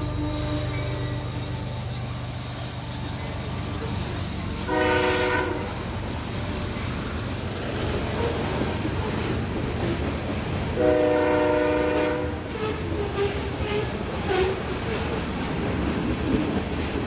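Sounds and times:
train wheels rumbling on rails: 0.0s - 17.0s
locomotive horn blast: 4.6s - 5.9s, 10.8s - 14.6s.

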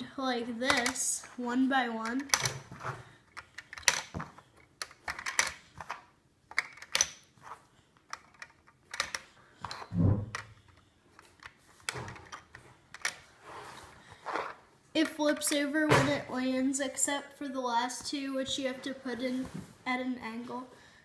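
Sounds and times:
plastic pieces clicking and clattering: 2.0s - 13.2s.

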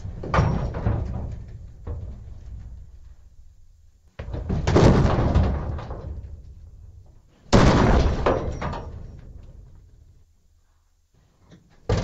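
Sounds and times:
hollow metal booms from dumpster: 0.0s - 2.9s, 4.2s - 6.9s, 7.5s - 9.7s.

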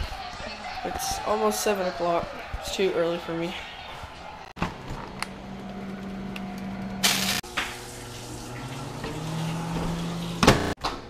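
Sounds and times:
kitchen appliances humming: 4.6s - 10.8s.

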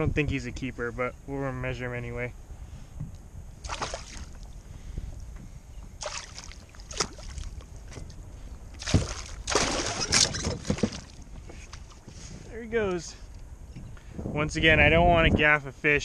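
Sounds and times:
fish splashing at water surface: 3.6s - 4.4s, 6.0s - 7.6s, 8.8s - 11.9s.

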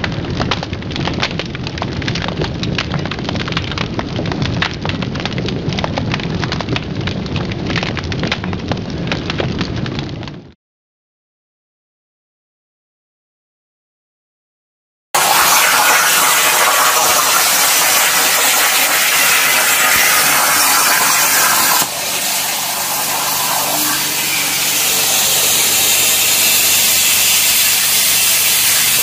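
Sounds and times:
plasma torch hissing: 15.2s - 29.0s.

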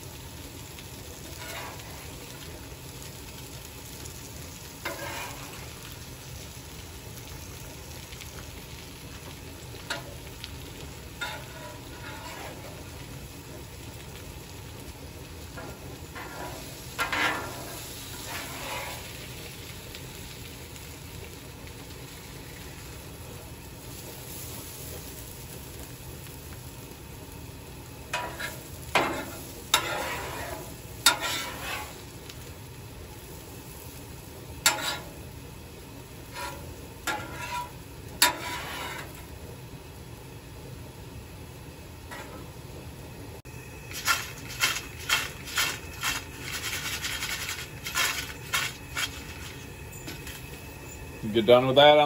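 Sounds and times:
burgers sizzling on griddle: 0.0s - 52.0s
metal utensil scraping griddle: 1.2s - 2.4s, 4.8s - 5.8s, 11.2s - 13.0s, 15.5s - 19.4s, 28.1s - 32.2s, 34.6s - 35.2s, 36.2s - 39.3s, 42.1s - 42.5s, 43.9s - 50.4s.

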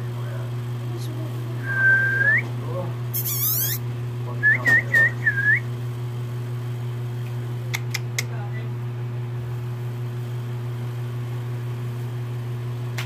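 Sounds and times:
steady low hum: 0.0s - 13.0s
person whistling: 1.7s - 2.4s, 4.5s - 5.6s
short hissy rustle: 3.1s - 3.8s.

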